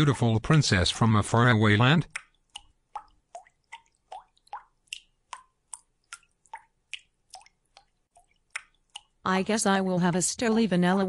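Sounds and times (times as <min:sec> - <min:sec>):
water dripping plinks: 0:01.7 - 0:09.6.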